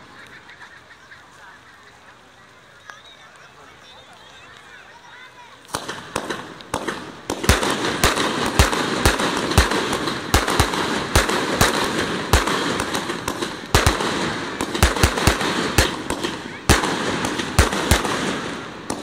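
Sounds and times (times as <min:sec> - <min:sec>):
firework crackling hiss: 0:00.0 - 0:19.0
firework bangs: 0:05.6 - 0:19.0.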